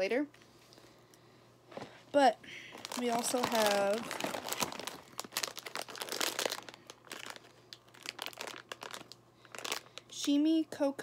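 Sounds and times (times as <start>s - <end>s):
plastic snack bag crinkling: 2.7s - 10.4s.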